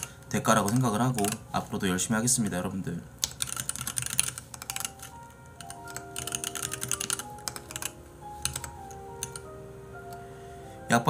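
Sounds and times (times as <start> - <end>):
computer keyboard typing: 0.0 - 1.7, 3.2 - 10.2
soft background music: 0.0 - 11.0.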